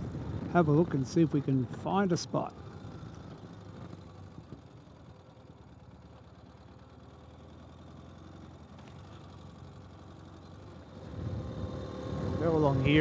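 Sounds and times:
motorcycle engine running: 0.0 - 13.0.

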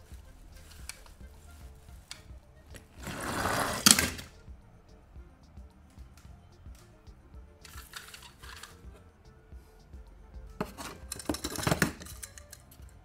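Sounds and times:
toy rustling over artificial grass: 0.0 - 4.2, 7.6 - 9.0
background music: 0.0 - 13.0
toy cars clattering in a box: 10.6 - 12.7.

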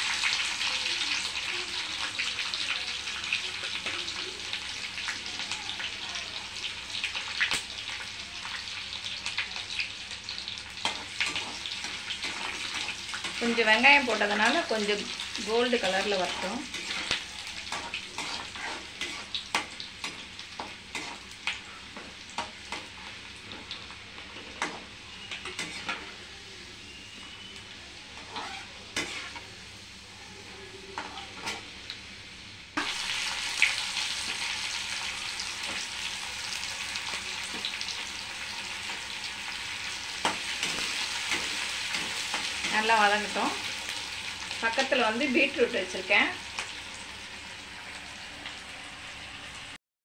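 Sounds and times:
spices sizzling in hot oil: 0.0 - 49.8
metal spatula scraping pan: 15.9 - 20.2, 24.6 - 26.1, 28.2 - 29.5, 31.0 - 31.7.

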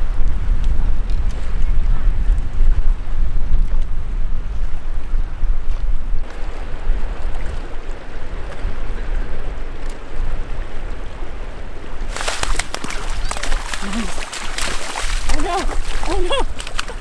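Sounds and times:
wind buffeting microphone: 0.0 - 17.0
rushing water: 6.2 - 17.0
fish thrashing and splashing: 12.1 - 17.0.

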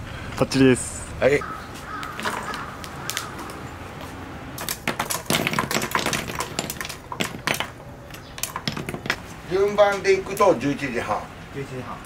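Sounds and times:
charcoal clinking and crackling: 4.6 - 10.8.

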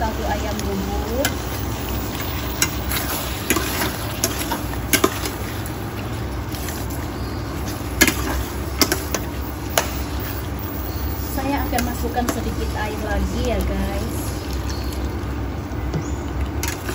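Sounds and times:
food sizzling: 0.0 - 15.6.

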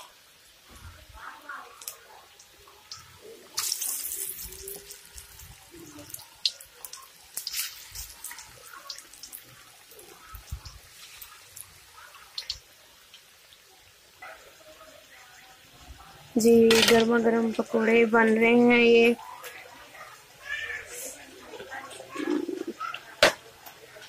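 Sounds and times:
oil crackles and pops: 0.0 - 18.4
food deep-frying in hot oil: 0.0 - 24.0.

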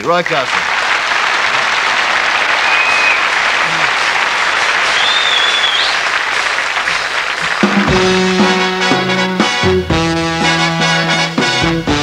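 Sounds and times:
audience applauding: 0.0 - 9.0
high whistles: 2.4 - 7.2.

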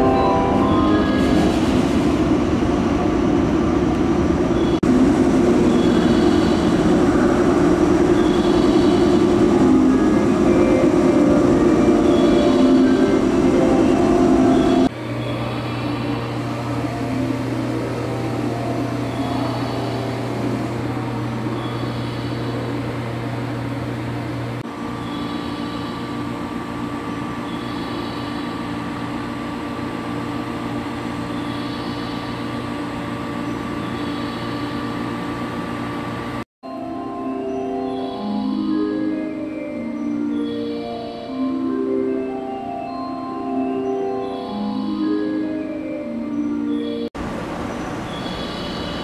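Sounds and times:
thin higher tone: 0.0 - 1.6
electric train equipment humming: 0.0 - 49.0.

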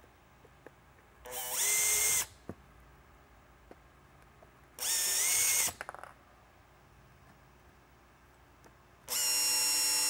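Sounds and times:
cordless drill motor whine: 1.3 - 2.3, 4.8 - 5.8, 9.1 - 10.0.

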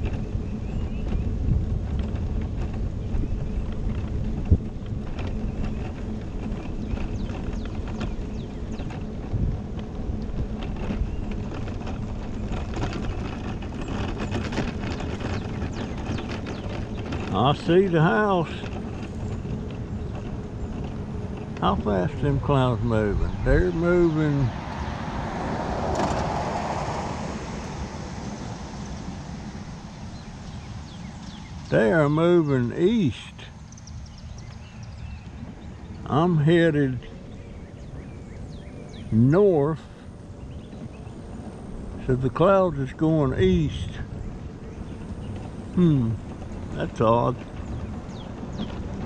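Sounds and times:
light clicks and rattles: 0.0 - 24.9
wind on microphone: 0.0 - 36.1, 36.9 - 49.0
mobility scooter motor hum: 0.0 - 49.0.

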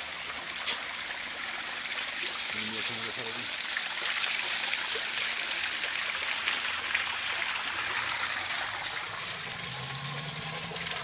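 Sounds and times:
running water splashing: 0.0 - 11.0.

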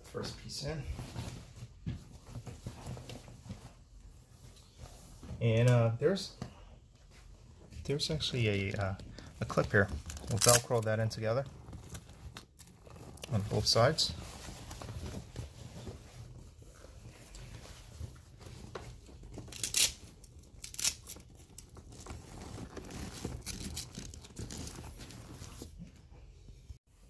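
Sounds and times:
fabric rustling: 8.8 - 20.4
velcro ripping: 10.1 - 10.8, 19.4 - 25.0.

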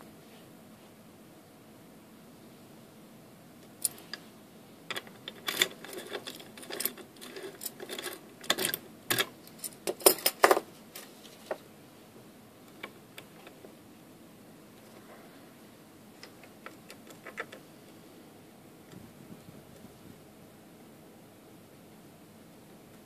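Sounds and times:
metallic clicks and rattles: 4.9 - 10.6, 16.2 - 17.6.

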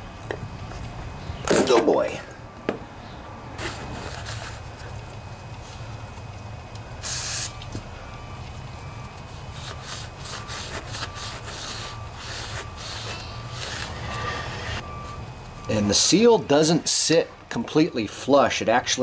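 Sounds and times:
short hiss: 7.0 - 7.6.

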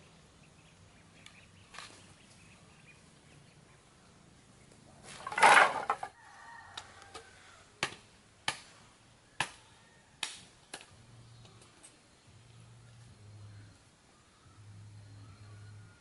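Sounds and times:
sticks dropped clattering: 5.0 - 6.2.

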